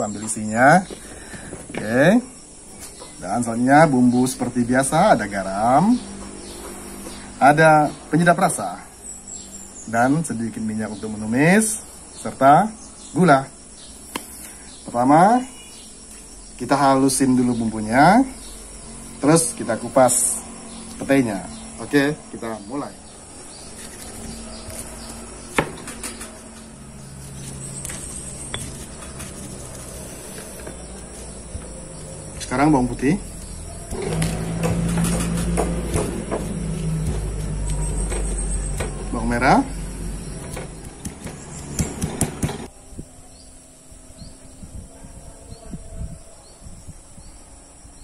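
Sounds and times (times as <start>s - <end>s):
insects chirping: 0.0s - 48.0s
faint high chirp: 14.2s - 16.7s
pestle grinding in mortar: 23.5s - 32.5s, 33.3s - 39.2s, 39.8s - 42.7s
stone knocking on stone: 25.5s - 26.4s, 40.7s - 42.7s
pestle knocking in stone mortar: 34.6s - 39.0s, 40.5s - 42.7s.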